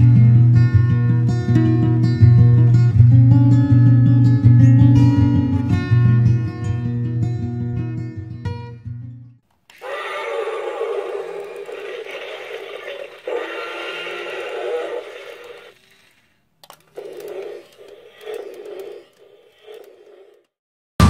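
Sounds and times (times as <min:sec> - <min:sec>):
toy dinosaur short growls: 0:09.7 - 0:16.3, 0:16.9 - 0:20.5
toy dinosaur electronic roar: 0:09.7 - 0:20.5.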